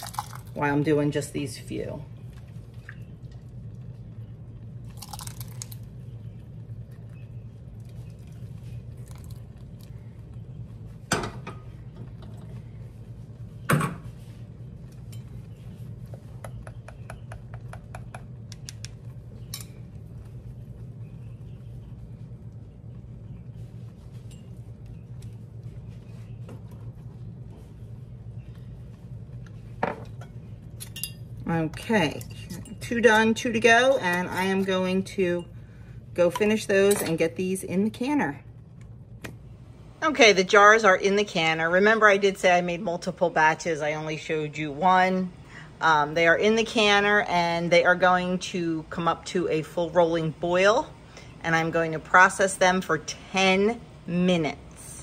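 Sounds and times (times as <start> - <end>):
low hum: 0.0 - 55.0
metal clinking on glass: 30.8 - 31.2.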